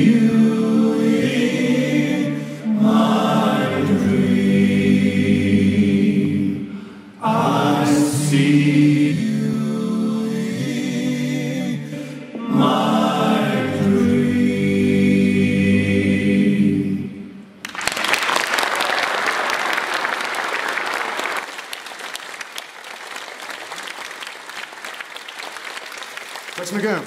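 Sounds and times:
men singing in harmony: 0.0 - 17.4
audience applauding: 17.6 - 27.0.

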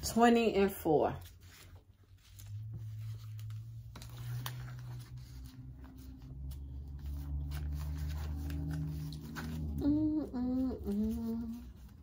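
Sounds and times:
pages being leafed through: 1.1 - 10.0.

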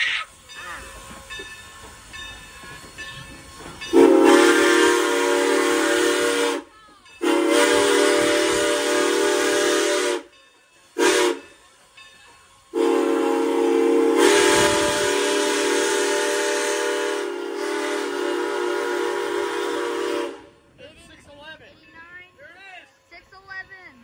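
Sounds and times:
steam whistle blowing: 3.9 - 10.4, 11.0 - 11.5, 12.7 - 20.6.

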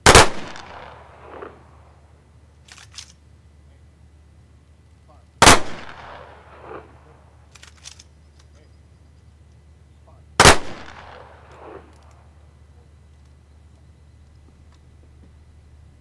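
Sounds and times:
rifle volleys with echo: 0.0 - 1.8, 5.4 - 8.0, 10.4 - 12.3.

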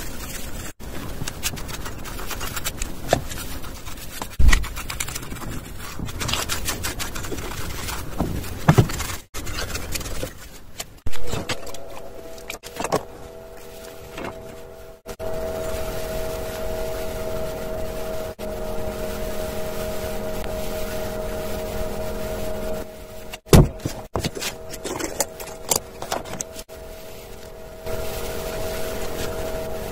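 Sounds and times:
paintbrush knocking and scraping: 0.0 - 11.0
steady hum of held tones: 11.1 - 29.9.

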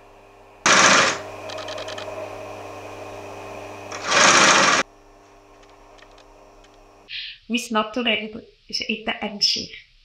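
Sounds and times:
fast machine stitching: 0.6 - 2.1, 3.9 - 4.8
sewing machine motor humming: 0.6 - 3.0, 3.6 - 4.9.

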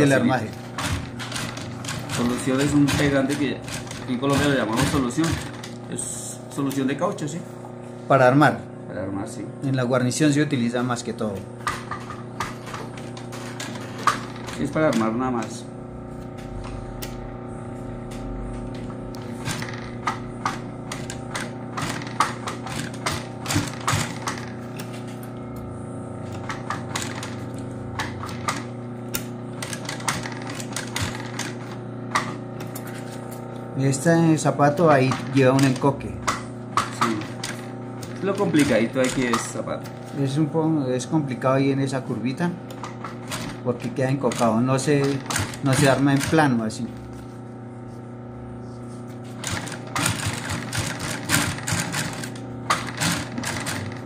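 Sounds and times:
sewing machine stitching: 0.0 - 5.8, 11.6 - 15.5, 19.2 - 24.6, 26.3 - 32.4, 34.5 - 36.0, 36.8 - 39.7, 42.7 - 46.6, 49.4 - 54.0.

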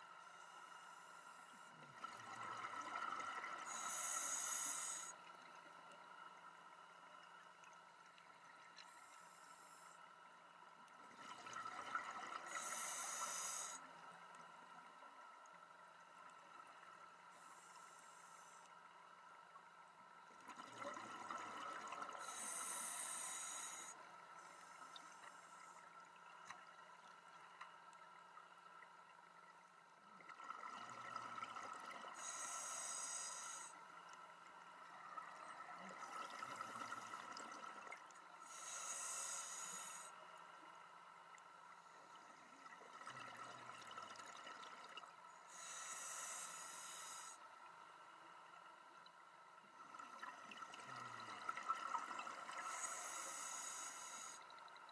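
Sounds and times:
regulator inhalation hiss: 3.7 - 5.2, 12.5 - 13.9, 22.2 - 25.8, 32.2 - 33.8, 38.4 - 40.1, 45.5 - 47.4, 52.6 - 54.4.

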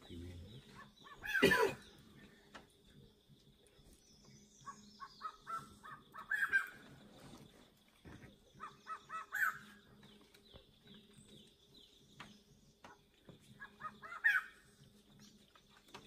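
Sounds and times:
birds calling harsh notes: 0.0 - 16.0.

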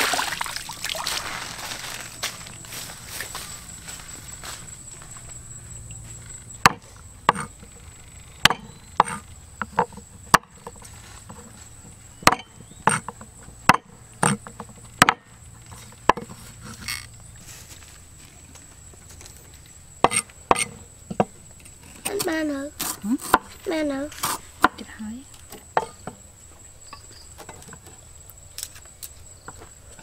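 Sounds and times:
blade chopping into wood: 6.6 - 7.5, 8.4 - 9.2, 12.2 - 13.1, 15.0 - 15.3.

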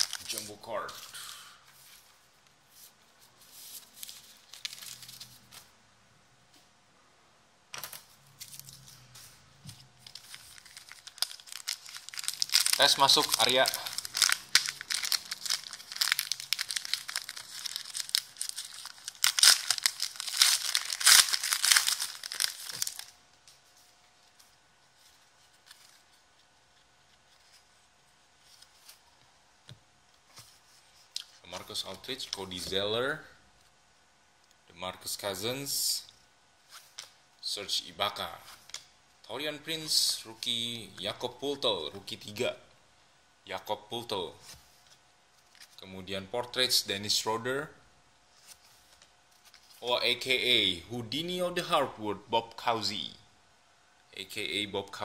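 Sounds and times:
foil wrappers crinkling: 0.0 - 1.1, 3.8 - 5.5, 10.0 - 23.1.

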